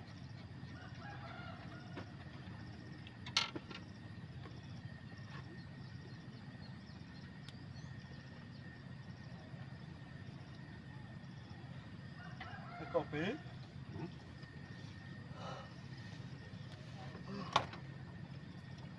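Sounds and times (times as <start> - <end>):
rooster crowing faintly: 0.6 - 2.6, 12.1 - 14.1
steady low rumble: 13.1 - 18.9.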